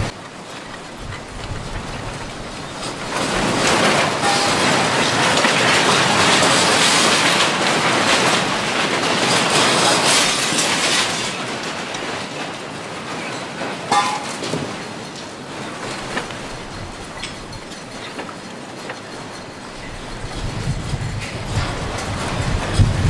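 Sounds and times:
earthquake rumbling and rattling: 0:00.0 - 0:23.0.

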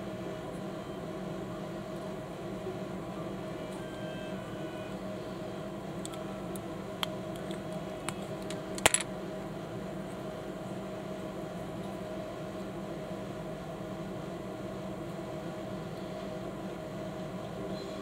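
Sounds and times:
steady background hum: 0:00.0 - 0:18.0
plastic bricks clicking and snapping: 0:07.4 - 0:09.0.

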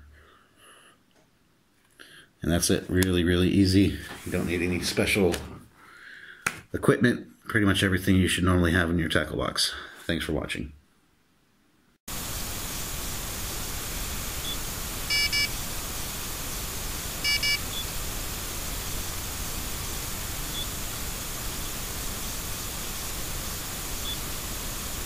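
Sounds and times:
outdoor hiss: 0:12.0 - 0:25.0
bite alarm electronic beep: 0:14.4 - 0:15.5, 0:17.2 - 0:17.9.

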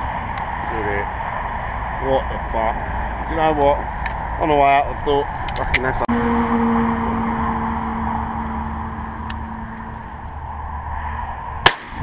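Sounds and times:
wind rumbling on microphone: 0:00.0 - 0:06.1, 0:06.8 - 0:12.0
engine drone: 0:00.0 - 0:12.0
shotgun shot: 0:11.6 - 0:12.0.

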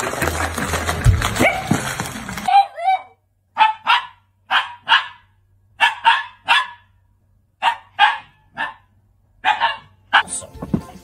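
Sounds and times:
dog barking: 0:02.5 - 0:07.0, 0:07.6 - 0:10.3.

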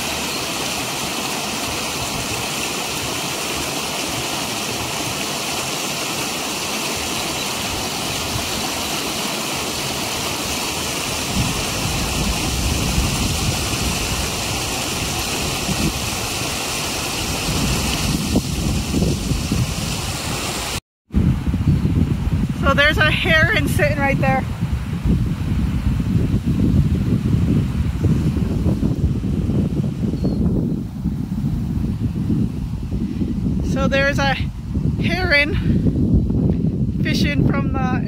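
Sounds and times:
water spilling over stone: 0:00.0 - 0:20.8
wind buffeting microphone: 0:09.9 - 0:38.0.

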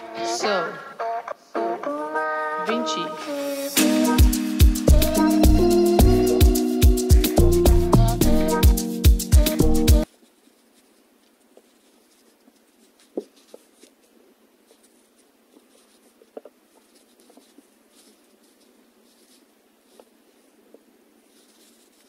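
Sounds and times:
fishing line rustling: 0:10.0 - 0:20.6, 0:21.2 - 0:22.0.

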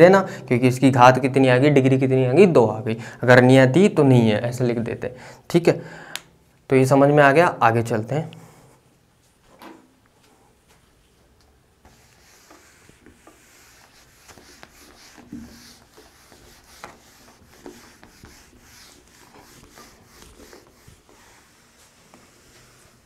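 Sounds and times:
eraser wiping a whiteboard: 0:11.8 - 0:23.0.

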